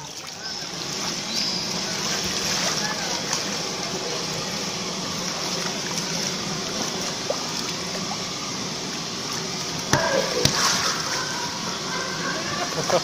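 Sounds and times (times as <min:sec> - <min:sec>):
water sloshing against inflatable ball: 0:09.2 - 0:13.0
sharp knocks: 0:09.9 - 0:10.6.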